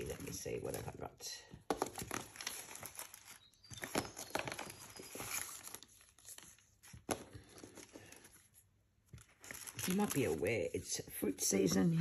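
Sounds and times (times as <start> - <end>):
paper rustling and crinkling: 1.7 - 10.8.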